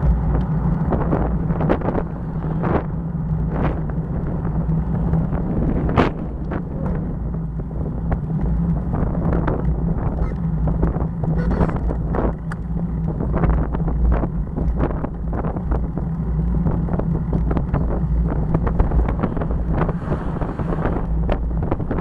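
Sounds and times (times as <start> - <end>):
low road rumble: 0.0 - 22.0
wind buffeting microphone: 0.0 - 22.0.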